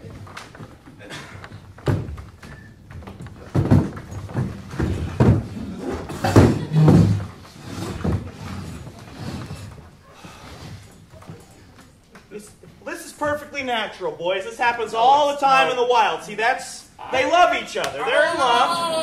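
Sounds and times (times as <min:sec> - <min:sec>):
metal chairs knocking and scraping: 0:00.0 - 0:11.8.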